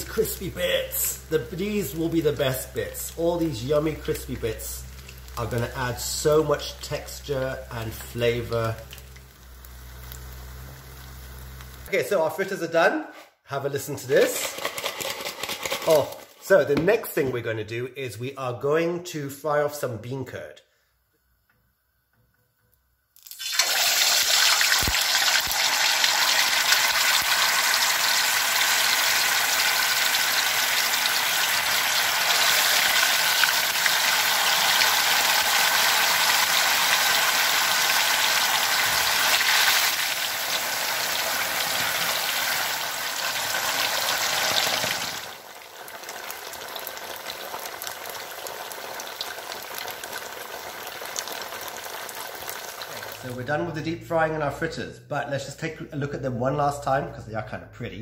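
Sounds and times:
tofu sizzling in hot oil: 0.0 - 11.9, 23.2 - 53.3.

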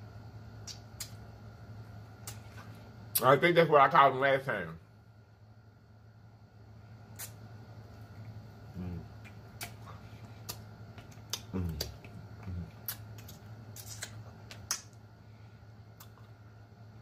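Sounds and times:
low hummed sounds: 0.0 - 17.0
steady low hum: 0.0 - 17.0
wet lip smacks: 0.6 - 1.2, 2.2 - 3.2, 7.1 - 7.4, 9.2 - 15.0.

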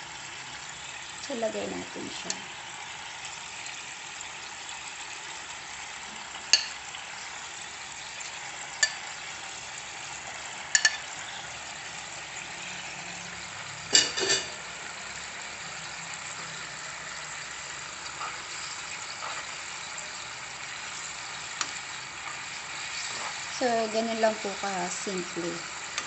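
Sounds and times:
sauce sizzling in a frying pan: 0.0 - 26.0.

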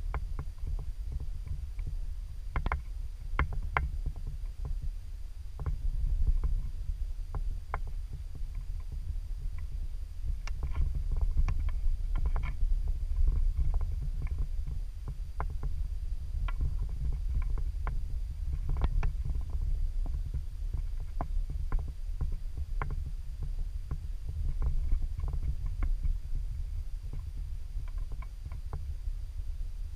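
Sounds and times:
low rumble on microphone: 0.0 - 29.9
small crackles and ticks: 0.0 - 29.9.

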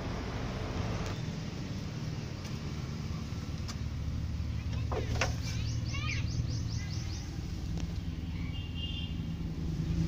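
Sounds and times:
steady low engine hum: 0.0 - 10.0
small birds chirping: 2.0 - 10.0
bird trill: 5.4 - 7.4.

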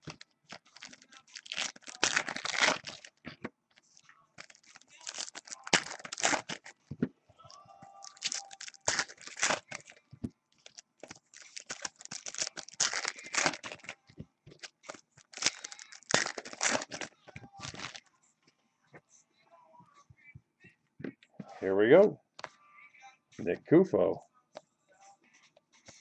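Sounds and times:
wrappers tearing and crinkling: 0.0 - 3.2, 4.4 - 6.8, 8.0 - 10.0, 10.6 - 18.0.

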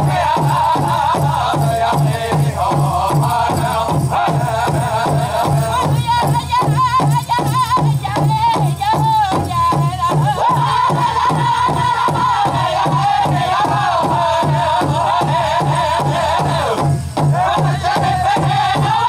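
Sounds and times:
big drum beating: 0.0 - 19.0
chorus of high wavering voices: 10.3 - 19.0.

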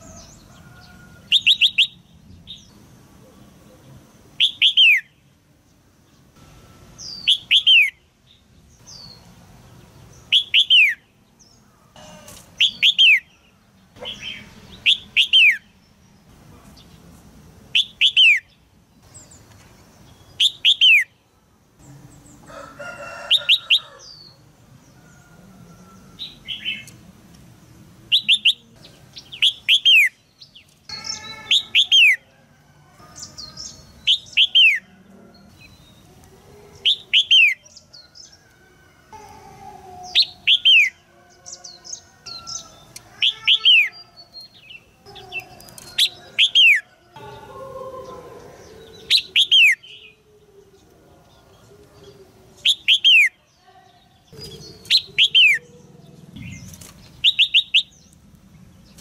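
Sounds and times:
bird harsh lower calls: 0.0 - 2.0, 4.4 - 5.2, 6.7 - 8.1, 10.3 - 11.1, 11.8 - 15.7, 17.8 - 18.6, 28.1 - 30.2, 30.9 - 32.3, 36.7 - 38.3, 39.1 - 50.3, 54.3 - 56.6.

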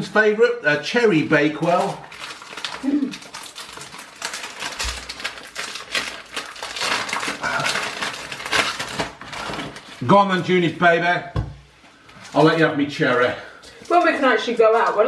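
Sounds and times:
wrapper crinkling and tearing: 1.4 - 10.6.

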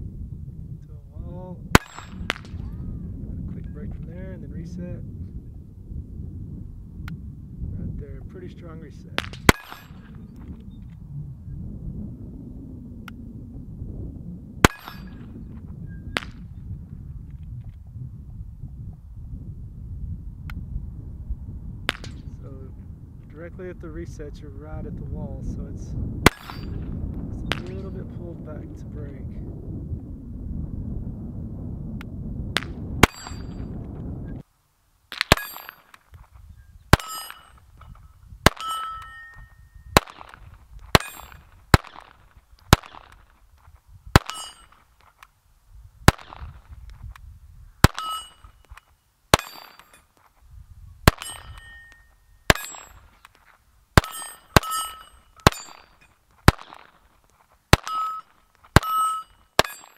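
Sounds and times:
steel target ringing: 1.8 - 2.4, 9.5 - 10.2, 14.6 - 15.3, 26.3 - 26.8, 33.0 - 33.8, 35.3 - 35.9, 36.9 - 37.7, 38.4 - 40.3, 41.0 - 42.1, 44.2 - 44.8, 47.8 - 48.7, 49.3 - 50.1, 51.1 - 53.1, 54.0 - 56.8, 57.8 - 59.9
pistol shots: 1.8 - 2.6, 9.2 - 10.2, 14.6 - 15.3, 26.2 - 26.8, 32.6 - 33.6, 35.1 - 36.0, 36.9 - 37.6, 38.4 - 43.3, 44.1 - 44.7, 46.1 - 46.6, 47.8 - 50.0, 51.1 - 53.1, 54.0 - 57.0, 57.7 - 59.9.

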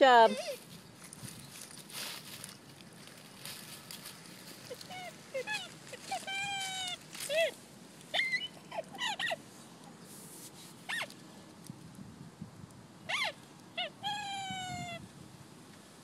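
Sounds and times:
rustling of dry leaves: 0.0 - 12.1
dog whining: 0.2 - 0.6, 4.6 - 9.4, 13.1 - 15.0.

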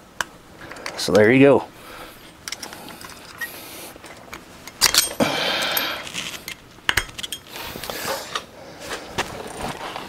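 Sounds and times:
metallic rattle: 2.2 - 7.6
metal tools clinking: 2.2 - 7.7.

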